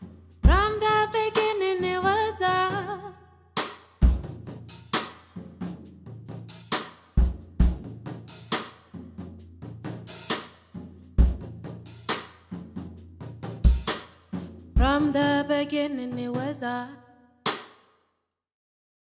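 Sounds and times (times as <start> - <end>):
snare and rimshot strokes: 3.6 - 4.0, 4.8 - 5.4, 6.5 - 7.2, 8.3 - 9.0, 10.1 - 10.8, 11.9 - 12.6, 13.6 - 14.5, 17.5 - 17.8.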